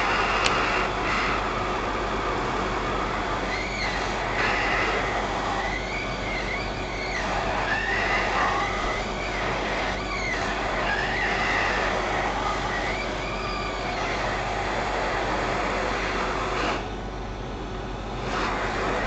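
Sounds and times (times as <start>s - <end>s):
hot air station hissing: 0.0s - 19.0s
wavering whistle: 3.4s - 16.9s.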